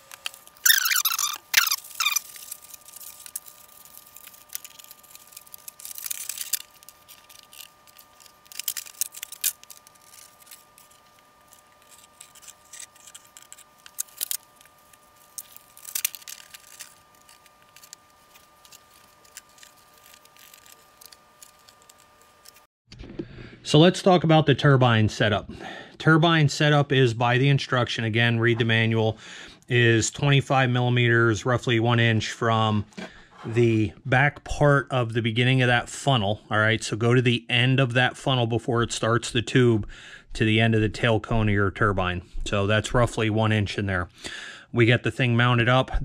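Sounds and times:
faint high whine: 0.0s - 22.7s
small plastic parts clicking: 0.1s - 11.0s.

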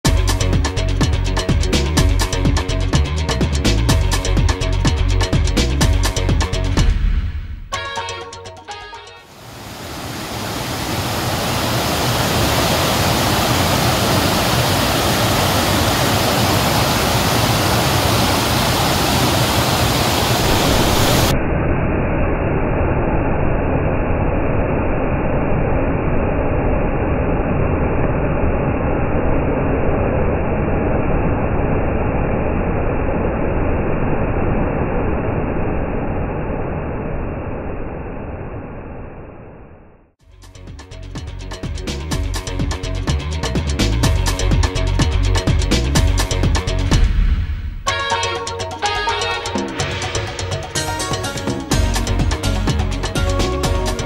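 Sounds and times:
waterfall pouring over rocks: 9.3s - 21.3s.

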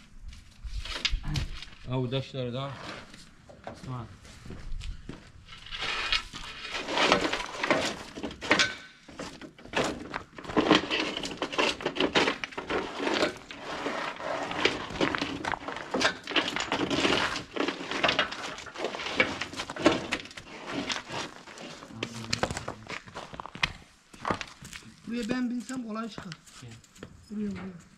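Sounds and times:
stones clattering: 5.5s - 26.3s.

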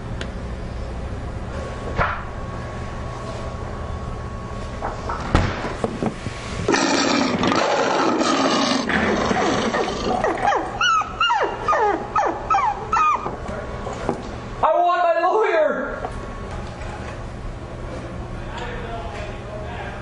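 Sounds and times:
low steady hum: 0.0s - 20.0s
animal growling: 6.7s - 10.5s
animal yelping cries: 6.7s - 13.3s.

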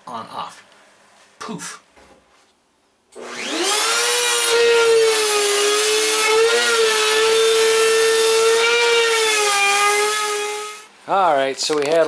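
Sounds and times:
power tool whining: 3.2s - 10.9s.

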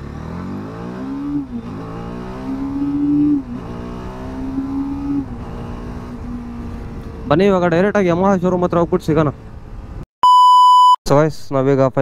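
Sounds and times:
motorcycle engine accelerating: 0.0s - 7.9s.

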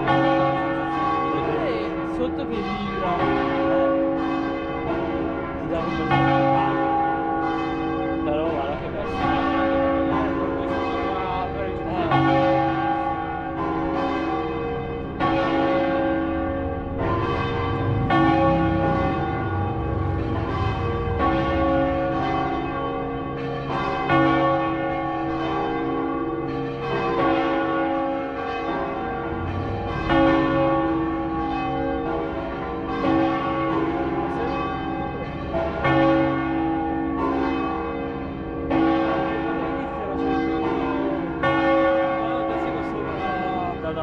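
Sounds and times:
church bells pealing: 0.0s - 44.0s.

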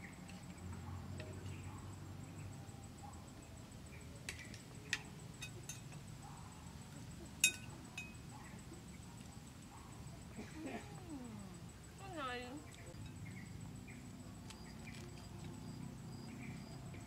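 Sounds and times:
metal spoon clinking on dishes: 5.4s - 6.0s, 7.4s - 8.2s.

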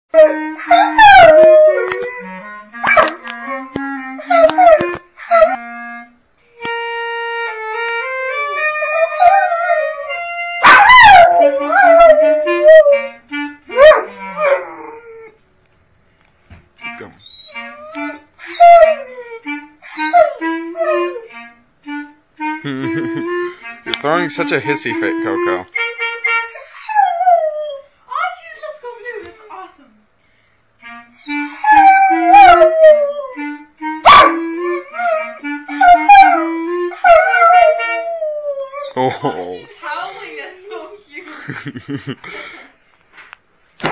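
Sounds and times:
held clarinet notes: 0.1s - 15.4s, 16.8s - 29.6s, 30.8s - 41.4s
dog whining and howling: 0.2s - 3.2s, 4.2s - 5.7s, 8.5s - 15.4s, 17.2s - 21.3s, 26.2s - 29.2s, 31.2s - 39.0s
dog yelping: 0.6s - 2.0s, 2.8s - 3.2s, 4.2s - 5.6s, 8.8s - 9.4s, 10.6s - 12.7s, 13.7s - 15.3s, 17.2s - 19.1s, 19.8s - 21.1s, 26.3s - 29.3s, 31.2s - 34.4s, 35.0s - 38.1s.

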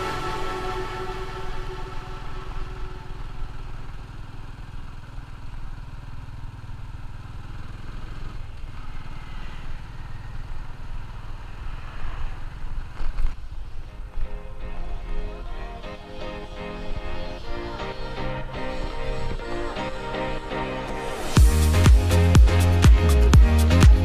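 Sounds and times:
motorcycle engine running: 0.0s - 14.2s.

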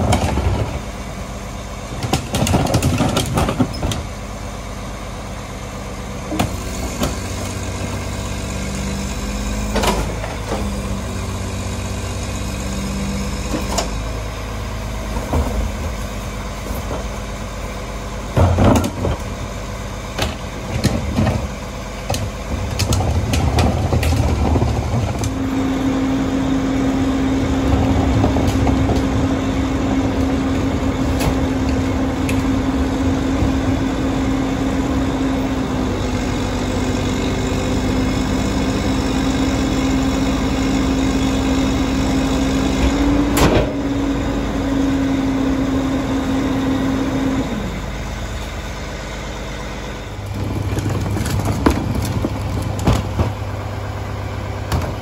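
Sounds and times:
diesel engine idling hum: 0.0s - 55.0s
hydraulic whine of truck engine: 0.0s - 55.0s
carts clunking: 50.2s - 53.6s.

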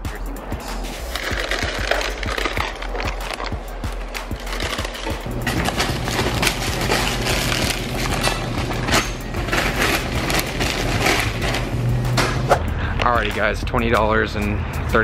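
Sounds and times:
food packaging crinkling: 1.0s - 11.9s.

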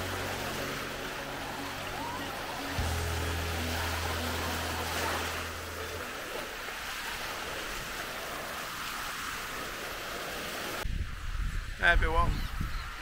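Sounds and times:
background music note: 0.0s - 6.7s
small waves washing on sand: 0.0s - 11.9s.

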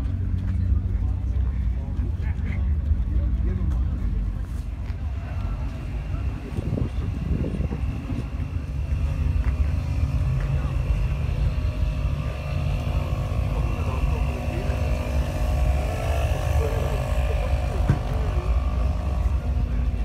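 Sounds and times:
faint distant voices: 0.0s - 20.0s
low engine drone: 0.0s - 20.0s
steady tones: 4.1s - 20.0s.

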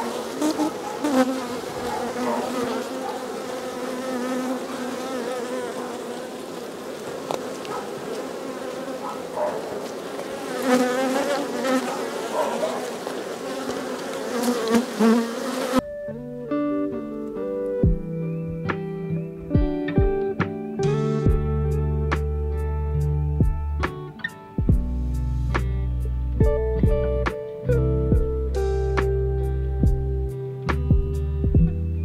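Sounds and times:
honeybees buzzing: 0.0s - 15.8s
acoustic guitar music: 15.8s - 32.0s.

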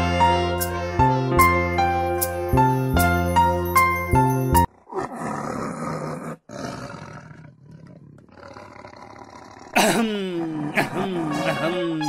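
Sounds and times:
lion roaring: 4.7s - 11.4s
wavering voice-like tone: 9.8s - 12.0s.

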